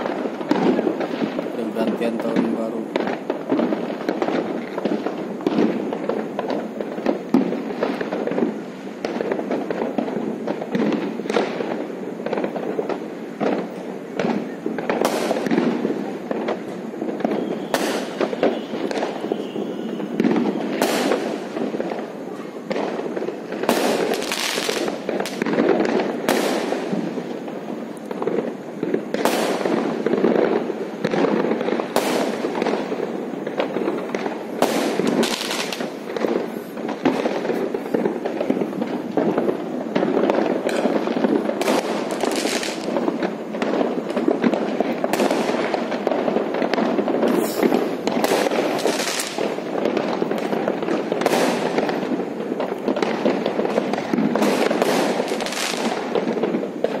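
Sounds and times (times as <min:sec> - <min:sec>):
fireworks popping and banging: 0:00.0 - 0:57.0
loud sharp firework cracks: 0:00.0 - 0:57.0.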